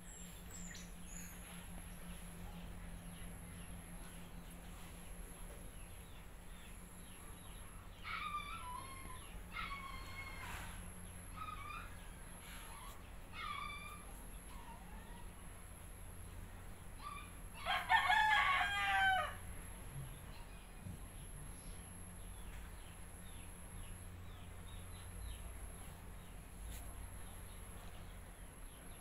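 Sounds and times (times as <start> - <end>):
steady low hum: 0.0 - 29.0
chickens calling: 1.3 - 20.6.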